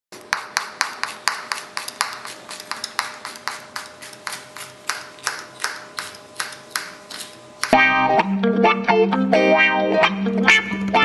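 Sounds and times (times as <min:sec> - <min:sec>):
knife chopping on cutting board: 0:00.2 - 0:07.8.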